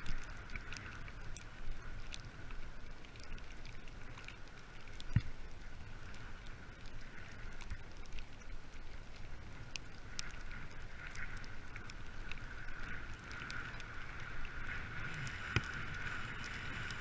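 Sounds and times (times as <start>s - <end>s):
small clicks and rattles: 0.0s - 17.0s.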